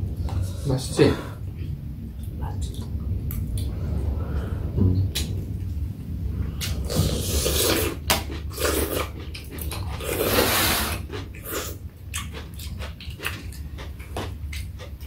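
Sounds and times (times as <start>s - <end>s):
chewing: 6.6s - 15.0s.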